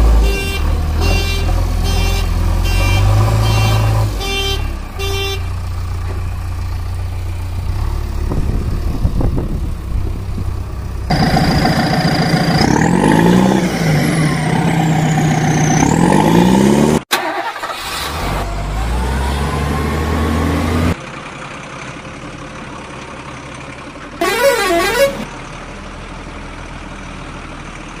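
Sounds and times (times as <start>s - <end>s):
horn blare with sliding tones: 0.0s - 5.5s, 24.2s - 25.3s
low engine hum: 0.0s - 17.0s.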